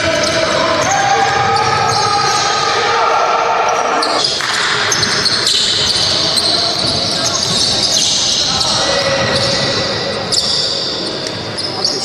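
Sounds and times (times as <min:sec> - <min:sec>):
sneakers squeaking: 0:00.0 - 0:12.0
basketball bouncing: 0:04.2 - 0:09.9.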